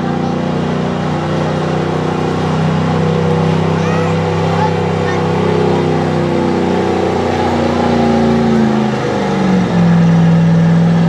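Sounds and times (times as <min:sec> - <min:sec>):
truck engine at full throttle: 0:00.0 - 0:11.0.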